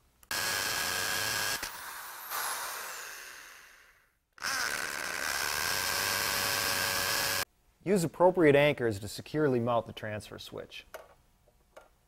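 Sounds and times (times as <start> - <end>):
electric drill whining: 0.3 - 7.5.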